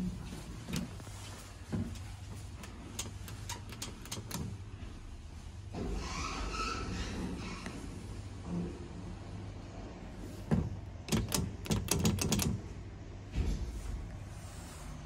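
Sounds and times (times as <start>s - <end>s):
elevator button clicks: 1.8s - 4.6s, 11.1s - 12.6s.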